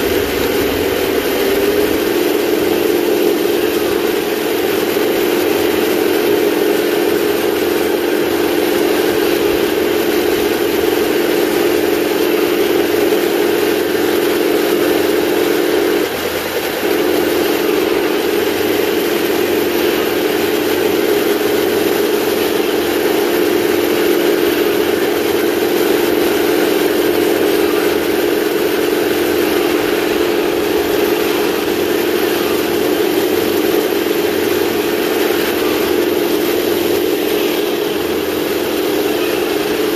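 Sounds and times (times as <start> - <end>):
simulated tank engine drone: 0.0 - 39.9.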